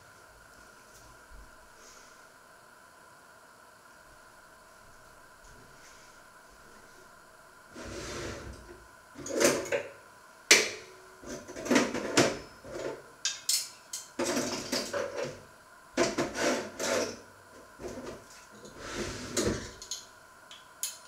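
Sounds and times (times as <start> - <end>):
kitchen things clattering: 11.3 - 15.4.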